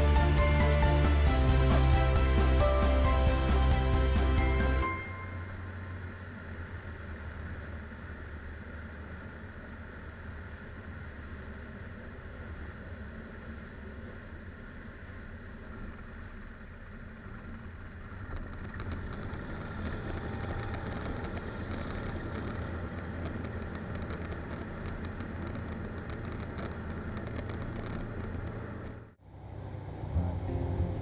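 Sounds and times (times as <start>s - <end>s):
aircraft engine and propeller: 0.0s - 31.0s
wind rush over camera: 18.1s - 29.0s.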